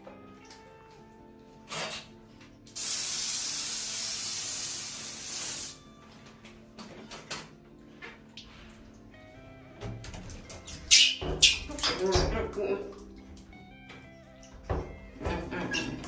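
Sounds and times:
soft background music: 0:00.0 - 0:16.0
shower head spraying water: 0:02.8 - 0:05.8.

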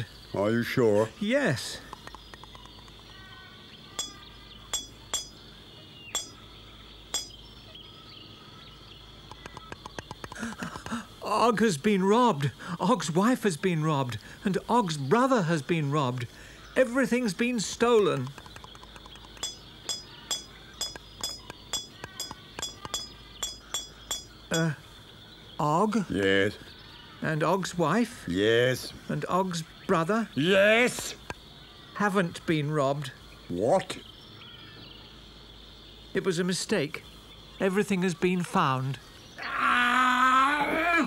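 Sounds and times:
hammer on chisel clinking: 0:04.0 - 0:05.4, 0:06.2 - 0:06.4, 0:07.1 - 0:07.4, 0:19.4 - 0:24.4.

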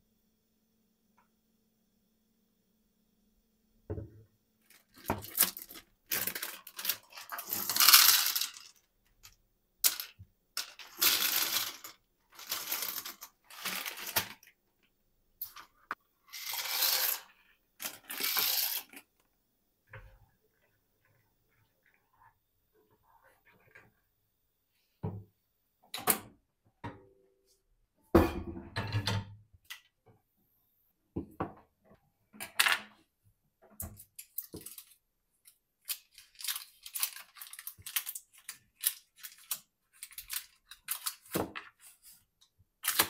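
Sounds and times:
dry pasta pouring into container: 0:04.7 - 0:08.8, 0:10.7 - 0:14.5, 0:16.3 - 0:19.0
plastic bag crinkling: 0:04.7 - 0:08.8, 0:35.8 - 0:41.3.

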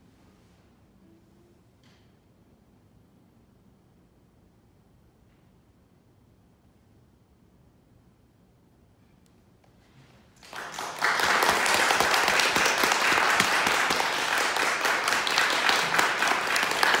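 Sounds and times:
audience applause: 0:10.4 - 0:17.0.

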